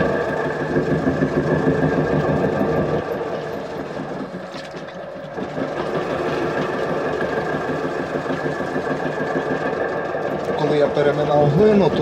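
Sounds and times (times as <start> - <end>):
potter's wheel motor hum: 0.0 - 12.0.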